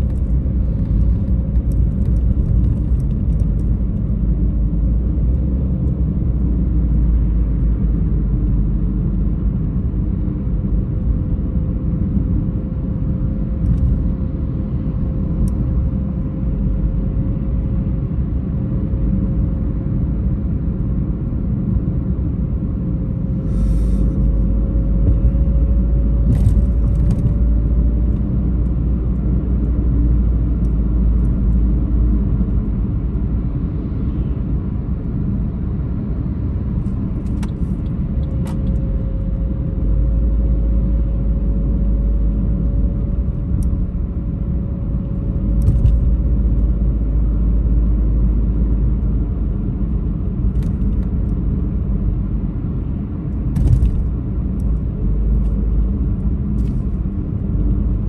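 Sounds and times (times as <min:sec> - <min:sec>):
car road rumble: 0:00.0 - 0:58.0.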